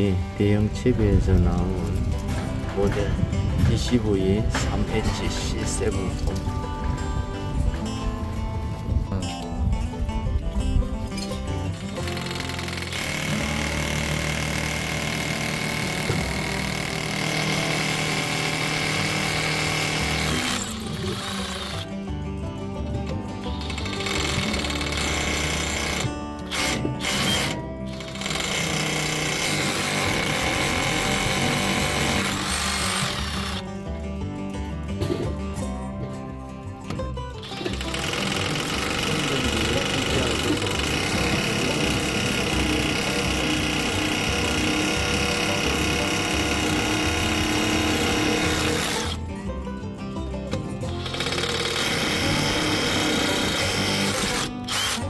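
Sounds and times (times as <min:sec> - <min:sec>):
background music: 0:00.0 - 0:55.0
hammer drill boring into concrete: 0:11.8 - 0:21.8, 0:23.5 - 0:33.6, 0:37.4 - 0:49.2, 0:50.9 - 0:55.0.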